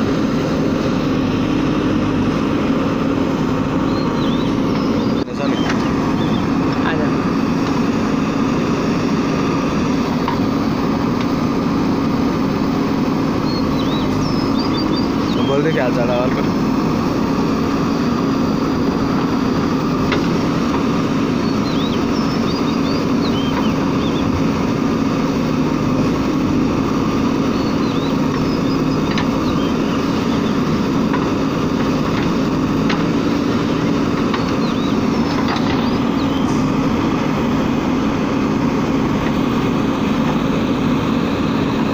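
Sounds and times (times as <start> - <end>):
backhoe digging soil: 0.0 - 41.9
diesel engine running steadily: 0.0 - 41.9.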